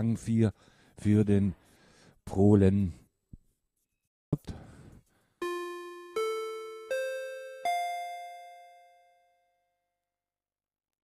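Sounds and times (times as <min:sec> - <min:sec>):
rising bell chime: 0:05.4 - 0:09.2.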